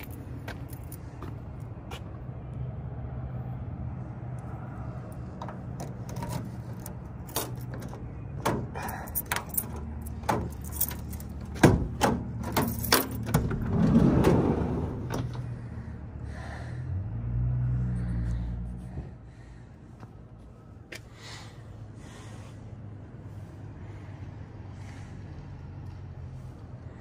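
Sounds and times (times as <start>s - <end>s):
clicks and clanks of handling: 5.4s - 13.6s
van sliding door opening: 9.4s - 15.7s.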